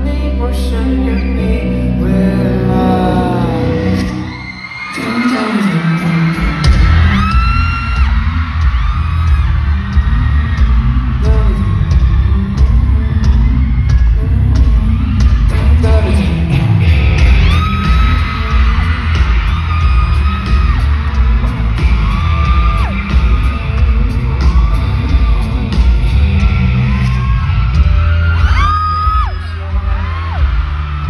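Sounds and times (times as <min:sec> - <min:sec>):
live pop music with bass beat: 0:00.0 - 0:31.0.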